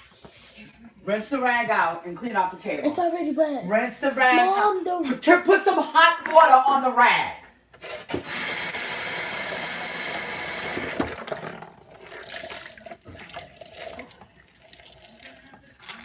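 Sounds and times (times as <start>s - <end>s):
sink tap running: 8.6s - 14.8s.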